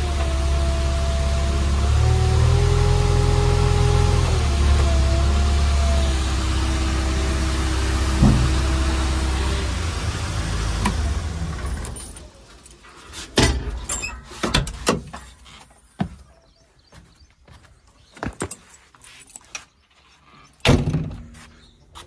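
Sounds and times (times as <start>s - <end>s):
diesel engine running down: 0.0s - 12.7s
door and body knocks and clunks: 8.1s - 8.9s.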